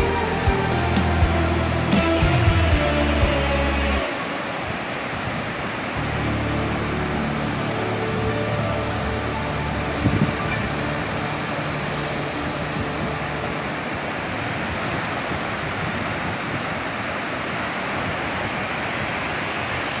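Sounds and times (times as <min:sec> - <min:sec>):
music: 0:00.0 - 0:04.2, 0:06.0 - 0:14.3
waves breaking on beach: 0:00.0 - 0:20.0.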